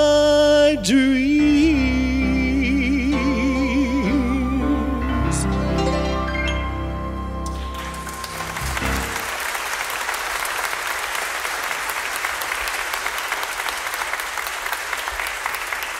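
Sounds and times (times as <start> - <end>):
audience applause: 7.5 - 15.9.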